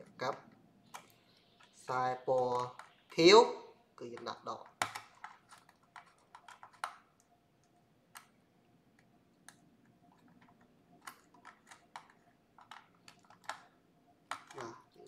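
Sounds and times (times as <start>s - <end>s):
plastic clicks and taps: 4.1s - 13.7s, 14.3s - 14.8s.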